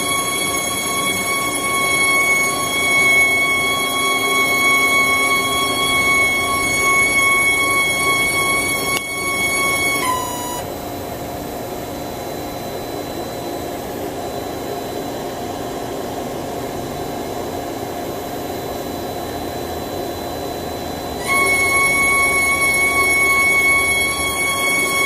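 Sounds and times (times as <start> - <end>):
high-pitched machine whine: 0.0 - 25.0
machine mechanical hum: 0.0 - 25.0.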